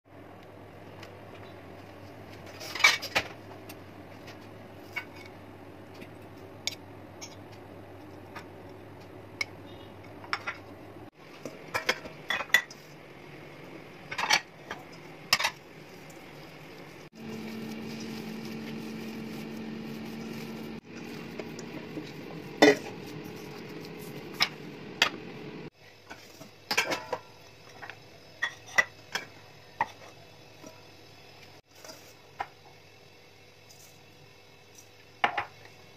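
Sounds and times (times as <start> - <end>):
steady low hum: 12.6 - 25.7.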